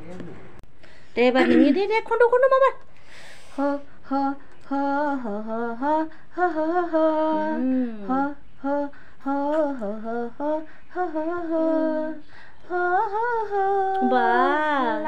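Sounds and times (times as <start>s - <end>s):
woman singing unaccompanied: 3.5s - 15.0s.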